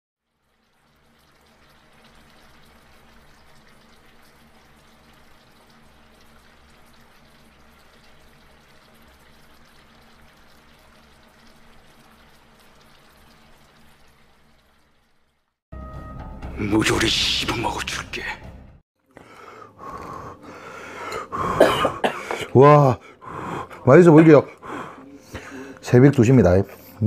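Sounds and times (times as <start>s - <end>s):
broth boiling in a pan: 0.2s - 15.6s.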